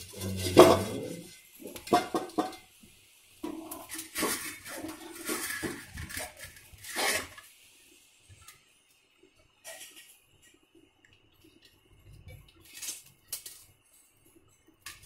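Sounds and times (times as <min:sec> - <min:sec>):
metal pot clanking on stove: 0:00.1 - 0:02.7.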